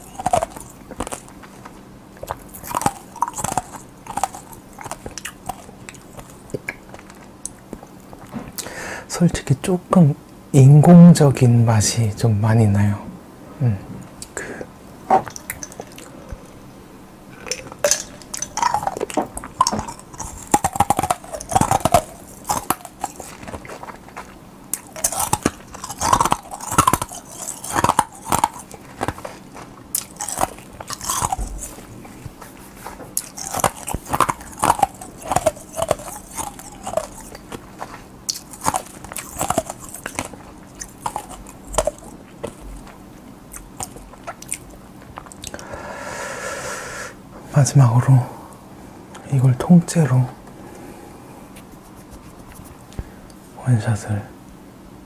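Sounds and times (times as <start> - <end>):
wet chewing and swallowing: 0.0 - 8.7, 14.2 - 45.8
gulping carbonated drink: 17.3 - 29.2.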